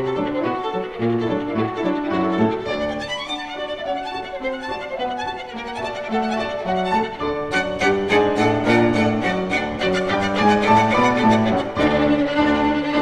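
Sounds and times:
instrumental background music: 0.0s - 13.0s.

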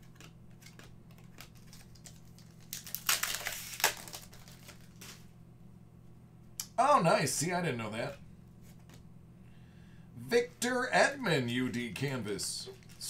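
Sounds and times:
foil wrapper crinkling: 0.0s - 5.2s
trading cards flipping: 0.0s - 5.2s, 8.6s - 9.0s.

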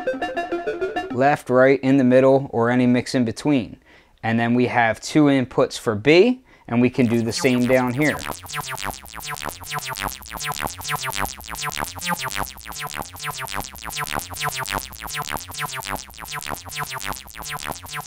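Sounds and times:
synthesizer short sweeping notes: 7.0s - 18.0s
low synth bass line: 7.1s - 18.0s.

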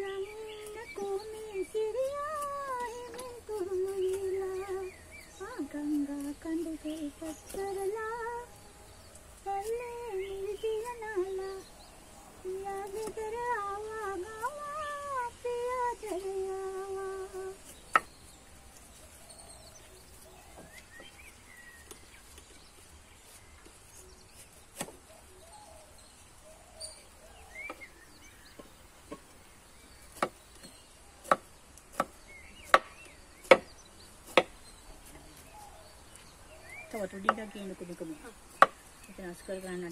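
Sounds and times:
faint bird chirps: 0.0s - 31.3s
woman humming: 9.4s - 17.6s.

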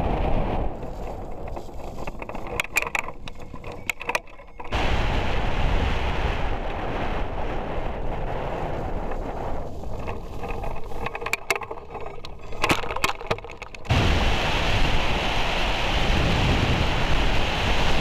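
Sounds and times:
wind buffeting microphone: 0.0s - 18.0s
sharp clicks and knocks: 0.8s - 4.8s, 9.1s - 14.0s.

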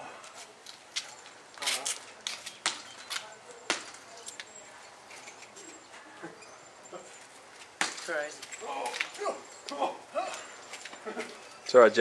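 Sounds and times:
tethered ball being hit: 3.6s - 4.1s, 7.8s - 8.3s.

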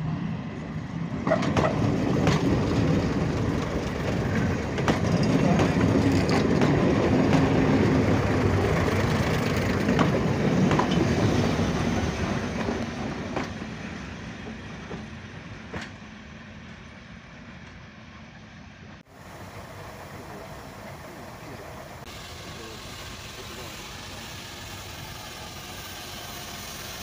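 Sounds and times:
train diesel engines running: 0.0s - 27.0s
train wheels clicking over rail joints: 1.2s - 16.8s.

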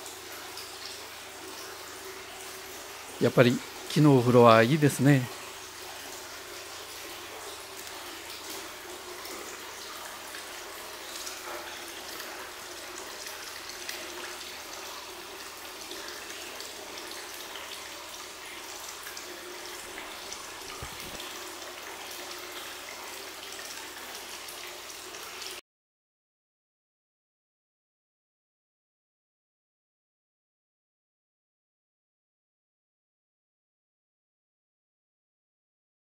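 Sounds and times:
water running into a bathtub: 0.0s - 25.6s.

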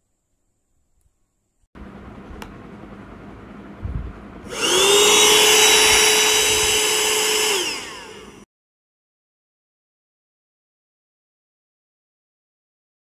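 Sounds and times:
vacuum cleaner motor whining: 4.4s - 8.5s.

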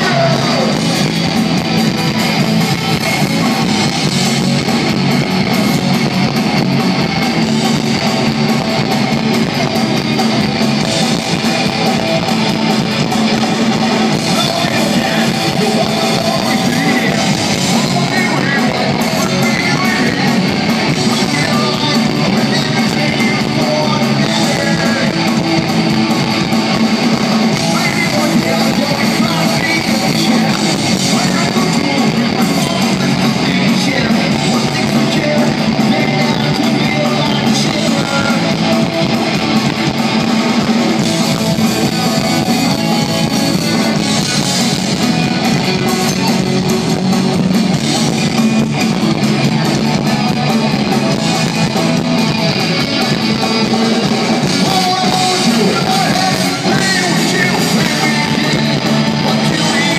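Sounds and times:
person singing: 0.0s - 1.7s, 13.0s - 25.7s, 27.1s - 39.2s, 49.4s - 59.9s
bass guitar: 0.0s - 59.9s
distorted electric guitars: 0.0s - 59.9s
drums: 0.0s - 59.9s.

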